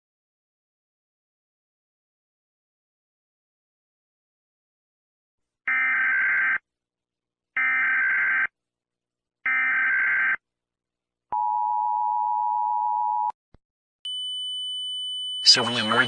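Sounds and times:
two-tone attention signal: 15.3s - 16.0s.

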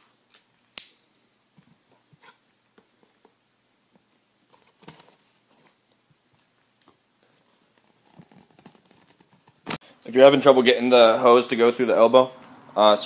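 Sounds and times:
plastic tubing clicks and rustles: 7.7s - 9.8s.

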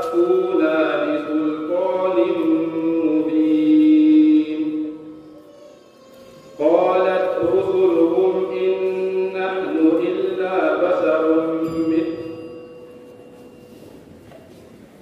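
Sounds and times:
man chanting melodically: 0.0s - 5.4s, 6.6s - 12.4s.

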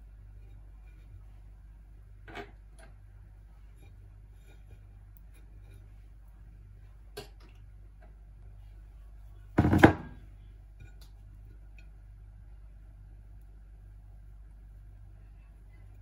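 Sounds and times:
low steady hum: 0.0s - 16.0s
loud knock: 9.6s - 10.2s.

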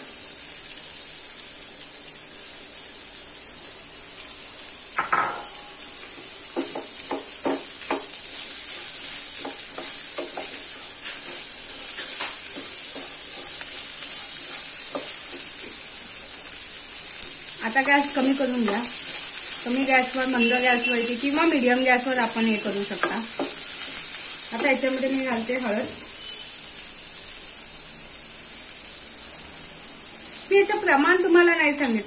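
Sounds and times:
okra sizzling in oil: 0.0s - 32.0s
spatula knocking and scraping pan: 5.0s - 15.9s, 22.5s - 25.1s.

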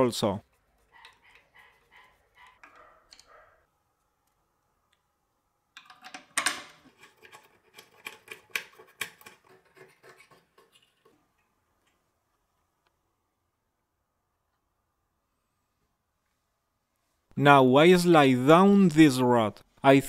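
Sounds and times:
metal screw scraping and clicking: 5.8s - 11.2s.

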